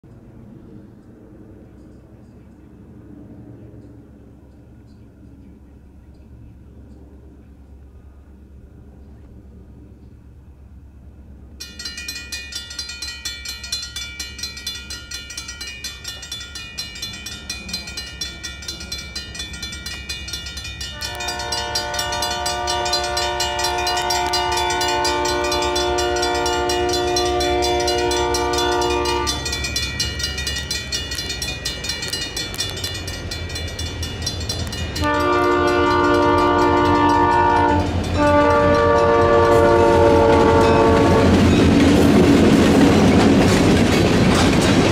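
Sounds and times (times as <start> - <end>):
low engine rumble: 0.0 - 44.9
crossing bell ringing: 11.6 - 42.6
locomotive air horn blasts: 20.8 - 29.7, 35.0 - 41.4.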